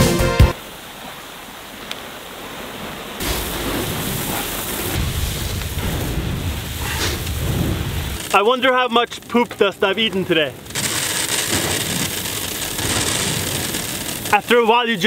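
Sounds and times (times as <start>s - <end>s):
pellets pouring into hopper: 10.8s - 14.3s.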